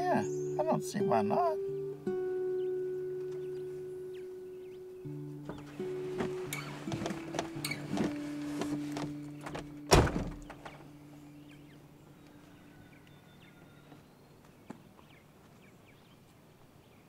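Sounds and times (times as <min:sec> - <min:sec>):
truck door opening: 0:05.4 - 0:10.8
car door slamming: 0:05.5 - 0:10.8
clicks and rustling: 0:05.5 - 0:10.8.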